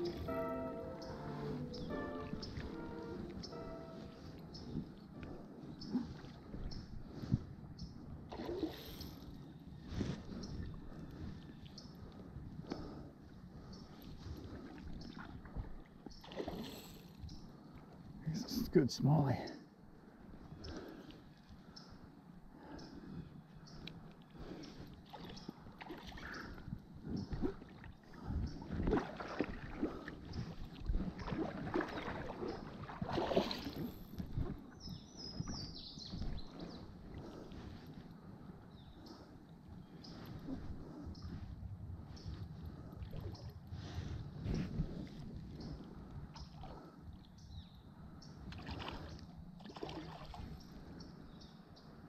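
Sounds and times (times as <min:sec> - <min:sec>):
creek water splashing: 0:00.0 - 0:04.7, 0:08.3 - 0:09.2, 0:14.6 - 0:17.1, 0:24.5 - 0:37.5, 0:48.5 - 0:50.7
bird singing high notes: 0:00.0 - 0:04.8
creek running over riffle: 0:28.7 - 0:36.8.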